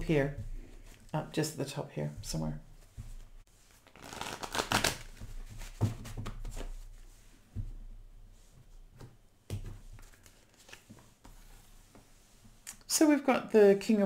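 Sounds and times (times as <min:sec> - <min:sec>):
card deck rustling: 0:03.6 - 0:07.0, 0:09.6 - 0:11.2.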